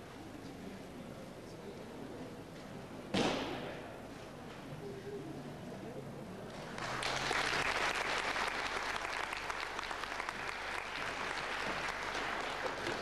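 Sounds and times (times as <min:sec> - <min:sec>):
audience applauding: 0:06.5 - 0:13.0.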